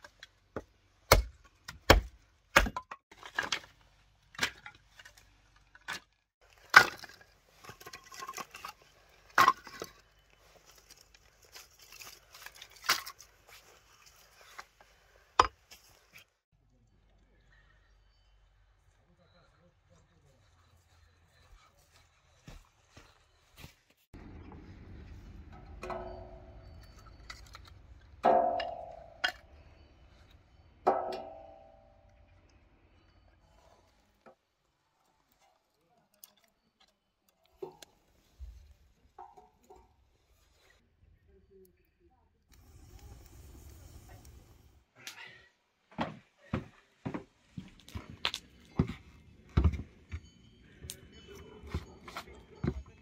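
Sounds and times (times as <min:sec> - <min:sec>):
kindling sticks clattering: 0:25.6 - 0:29.6.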